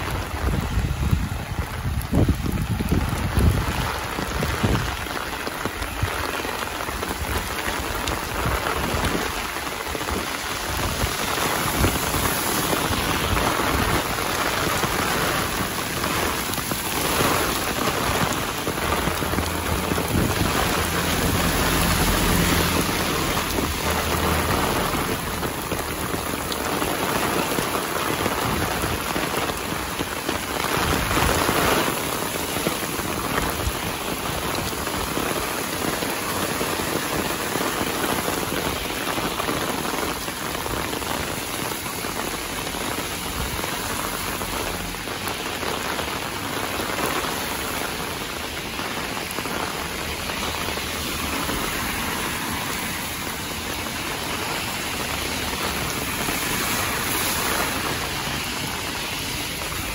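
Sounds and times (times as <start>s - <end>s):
heavy rain pouring on road: 0.0s - 59.9s.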